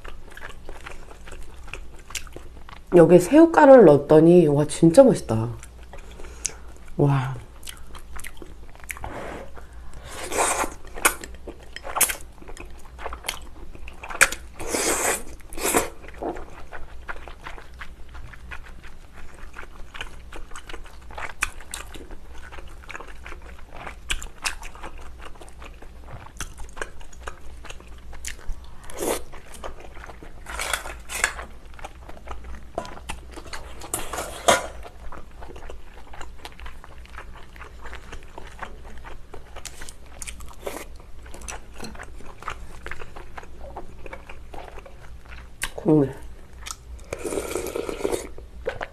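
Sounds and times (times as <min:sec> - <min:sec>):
chewing with wet clicks: 0:00.0 - 0:03.0, 0:05.6 - 0:07.0, 0:07.6 - 0:09.0, 0:10.7 - 0:14.6, 0:15.3 - 0:33.9, 0:34.8 - 0:47.1
person slurping noodles: 0:09.0 - 0:10.8, 0:14.6 - 0:16.4, 0:47.0 - 0:48.4.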